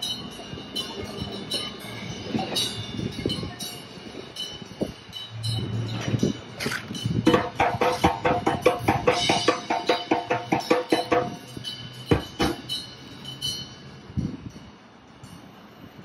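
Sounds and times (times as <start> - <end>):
pitched percussion strikes: 1.1 - 13.8.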